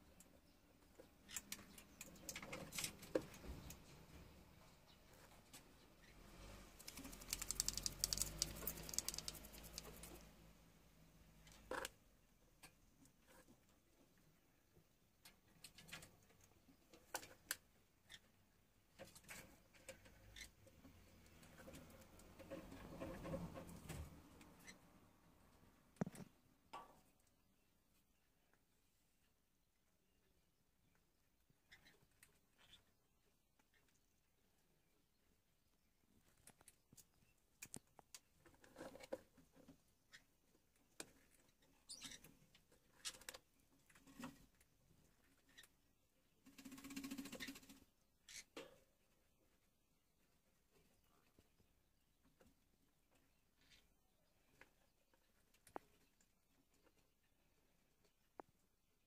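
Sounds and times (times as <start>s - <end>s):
faint clicks: 6.8s - 10.2s.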